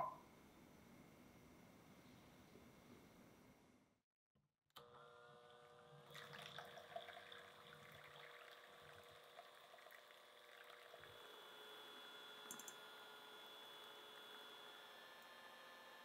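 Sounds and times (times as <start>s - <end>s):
electric hand mixer motor whine: 10.3s - 16.0s.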